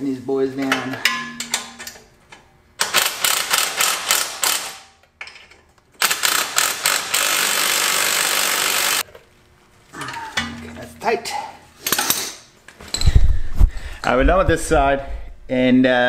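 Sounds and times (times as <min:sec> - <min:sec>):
impact wrench hammering: 0:01.0 - 0:02.0, 0:02.8 - 0:05.0, 0:06.0 - 0:09.0, 0:10.4 - 0:11.1.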